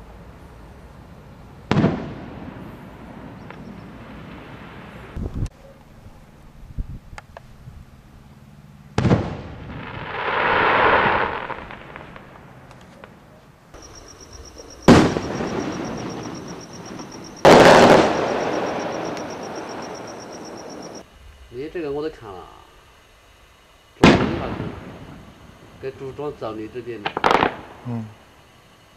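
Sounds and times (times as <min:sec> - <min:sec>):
firework shells bursting: 0:13.8 - 0:21.0, 0:26.9 - 0:27.8.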